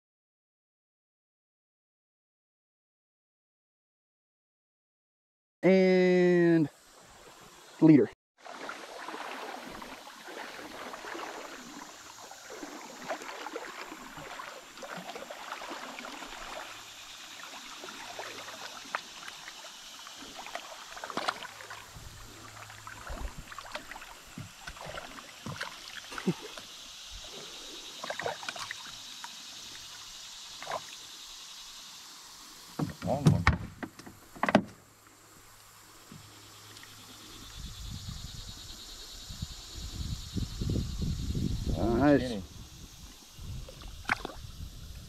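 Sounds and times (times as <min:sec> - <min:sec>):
river water lapping around kayak: 0:06.7 - 0:45.0
short splashes: 0:08.4 - 0:29.3, 0:43.7 - 0:44.5.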